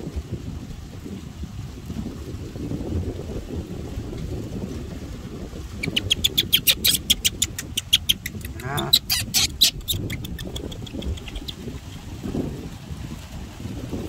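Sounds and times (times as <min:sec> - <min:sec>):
wind noise on microphone: 0:00.0 - 0:14.0
baby monkey squealing: 0:05.8 - 0:11.6.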